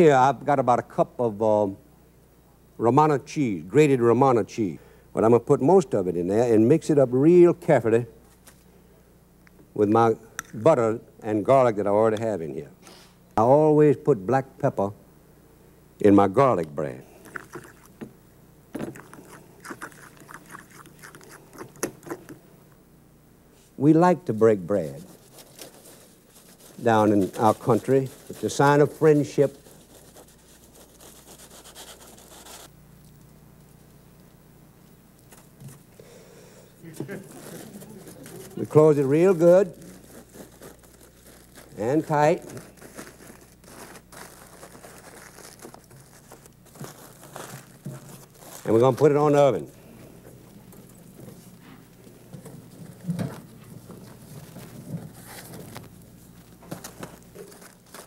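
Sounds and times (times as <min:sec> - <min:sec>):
butter spread on bread rubbing: 0:24.8 - 0:32.7.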